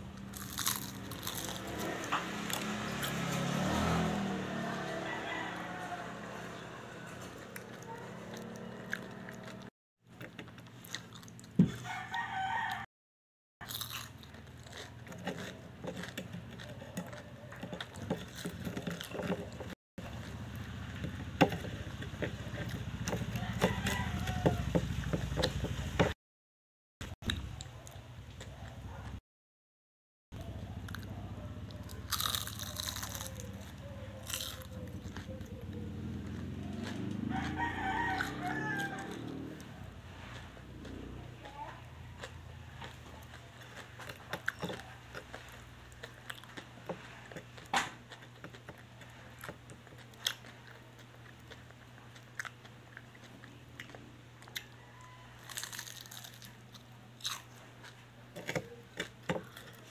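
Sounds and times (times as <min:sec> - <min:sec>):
chewing and crunching: 0:00.0 - 0:12.9, 0:13.6 - 0:26.2, 0:27.2 - 0:29.2, 0:30.4 - 0:59.9
crunching bites into spring roll: 0:00.2 - 0:02.2, 0:31.9 - 0:35.3, 0:55.4 - 0:59.9.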